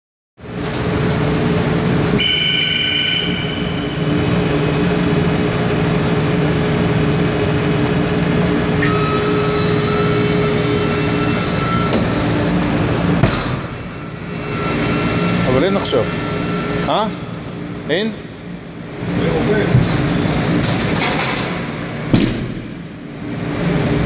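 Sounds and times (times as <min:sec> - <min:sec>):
hydraulic machine hum with whine: 0:00.4 - 0:24.0
high squeal: 0:02.2 - 0:04.2, 0:08.8 - 0:12.8, 0:13.6 - 0:17.3.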